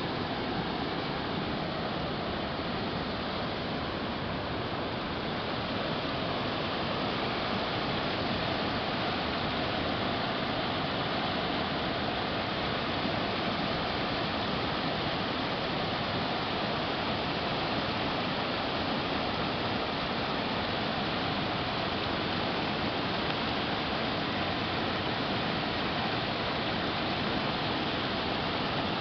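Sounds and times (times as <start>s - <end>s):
flooded creek rushing over rocks: 0.0s - 29.0s.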